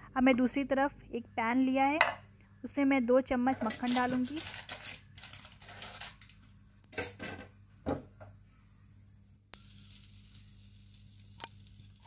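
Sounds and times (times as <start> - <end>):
butter sizzling in a frying pan: 9.6 - 12.0.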